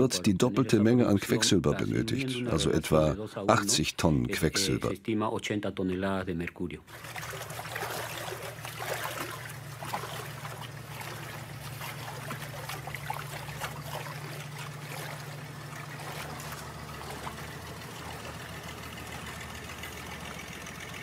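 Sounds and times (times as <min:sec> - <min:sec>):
feet squelching in wet sand: 0:06.9 - 0:18.5
low motor hum: 0:06.9 - 0:21.0.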